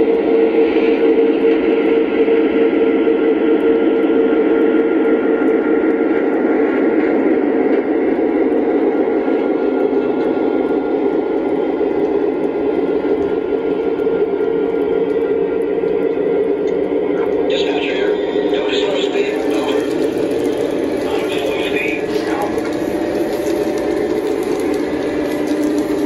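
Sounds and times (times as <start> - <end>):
steady hum: 0.0 - 26.0
model train wheels rumbling on rails: 17.5 - 26.0.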